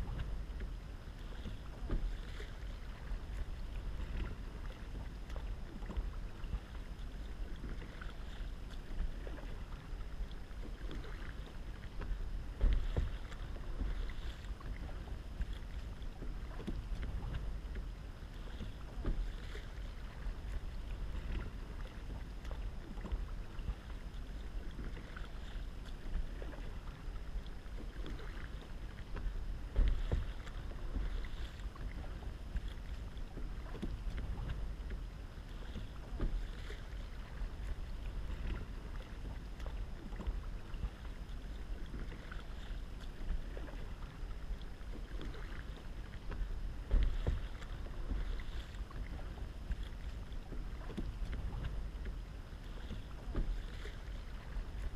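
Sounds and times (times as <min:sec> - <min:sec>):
paddle splashing in water: 0:00.0 - 0:54.9
steady low rumble: 0:00.0 - 0:54.9.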